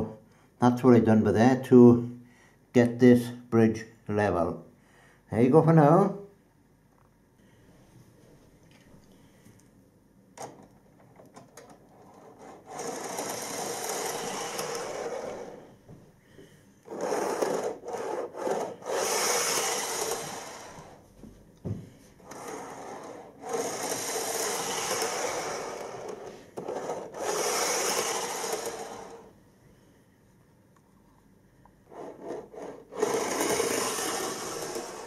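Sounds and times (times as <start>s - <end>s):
model train rattling on track: 12.6s - 15.5s, 16.9s - 20.8s, 23.4s - 29.2s, 32.2s - 35.0s.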